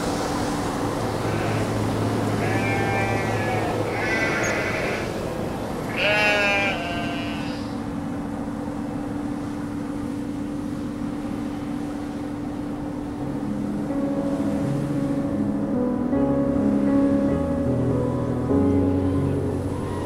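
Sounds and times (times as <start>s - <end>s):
faint rushing background: 0.0s - 20.0s
steady low hum: 0.0s - 20.0s
wavering bleat-like animal calls: 1.2s - 5.2s, 5.8s - 7.8s.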